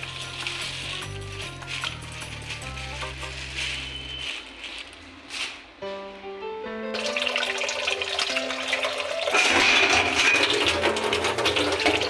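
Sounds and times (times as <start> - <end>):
background music: 0.0 - 4.0, 5.8 - 12.0
tap water running into steel bowl: 7.0 - 12.0.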